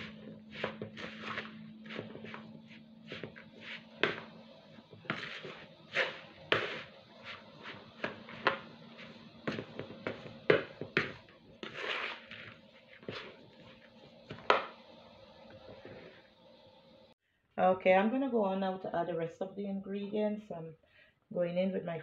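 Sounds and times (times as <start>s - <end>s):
spatula scraping plastic bowl: 0.0s - 14.8s, 15.5s - 16.3s.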